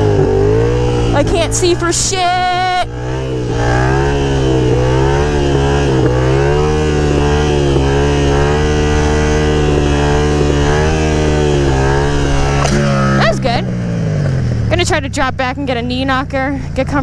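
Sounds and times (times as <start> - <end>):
motorcycle engine under throttle: 0.0 - 17.0.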